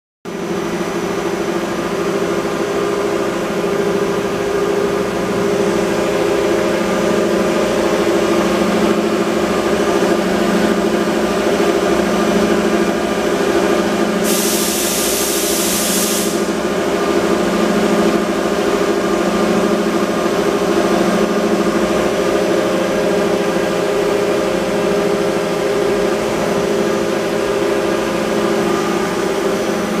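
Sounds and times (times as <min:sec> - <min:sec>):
lathe humming and whining: 0:00.3 - 0:30.0
hiss: 0:14.2 - 0:16.6.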